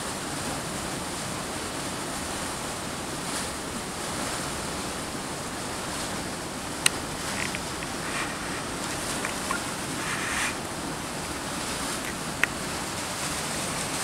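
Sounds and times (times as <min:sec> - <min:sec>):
waterfall rushing: 0:00.0 - 0:14.0.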